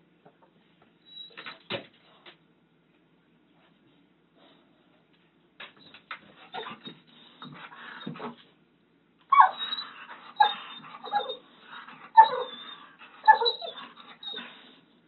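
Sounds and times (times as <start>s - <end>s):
dog whining: 6.4s - 8.4s, 9.3s - 14.8s.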